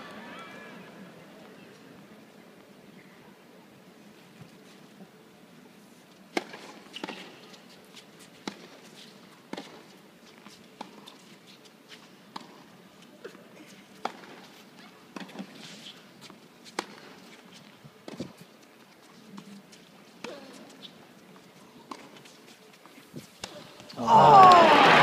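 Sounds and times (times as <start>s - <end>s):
tennis ball strikes and bounces: 6.3s - 7.3s, 16.7s - 17.1s
hushed crowd hum: 18.7s - 25.0s.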